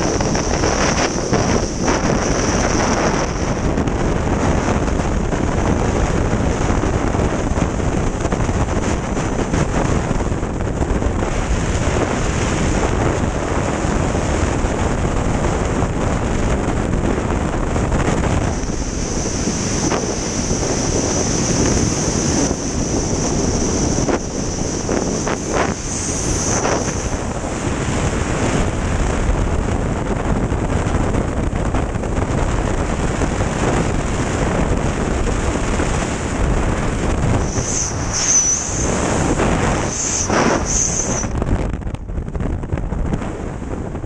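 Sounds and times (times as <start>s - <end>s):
wind rushing over microphone: 0.0s - 44.0s
high hiss: 37.3s - 41.4s.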